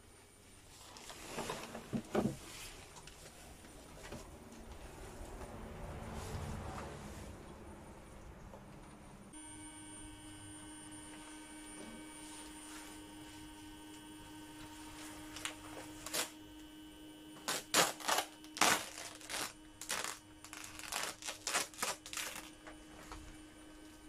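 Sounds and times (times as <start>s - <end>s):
steady hum with high whine: 0.0s - 24.0s
plastic sheet crackling: 15.3s - 16.4s, 17.4s - 22.6s.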